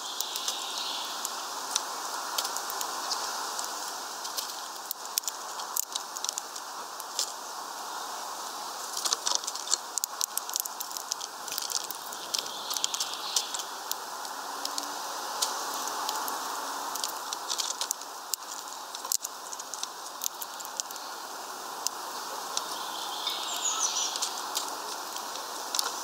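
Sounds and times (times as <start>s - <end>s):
steady background hiss: 0.0s - 26.0s
bird cracking seeds clicks: 1.7s - 7.4s, 8.9s - 14.0s, 14.6s - 21.0s, 24.1s - 26.0s.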